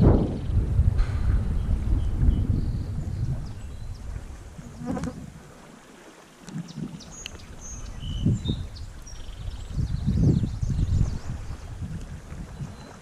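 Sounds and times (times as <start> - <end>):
wind buffeting microphone: 0.0 - 5.7, 6.5 - 13.0
birds chirping: 1.4 - 5.0, 6.4 - 11.8.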